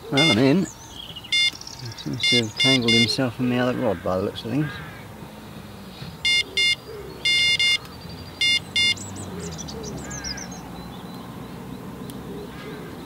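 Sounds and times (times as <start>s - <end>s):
small birds chirping: 0.0s - 13.0s
electronic alarm beeps: 0.2s - 0.6s, 1.3s - 1.6s, 2.2s - 3.2s, 6.2s - 7.8s, 8.4s - 9.1s.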